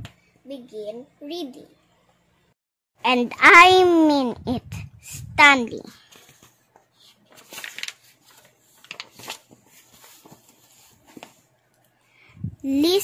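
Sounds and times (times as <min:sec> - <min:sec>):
book pages rustling: 0:05.9 - 0:11.5.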